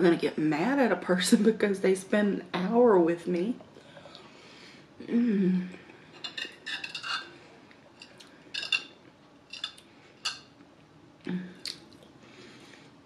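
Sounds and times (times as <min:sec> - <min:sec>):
metal spoon clinking on a plate: 0:06.2 - 0:07.3, 0:08.0 - 0:08.9, 0:09.5 - 0:10.5.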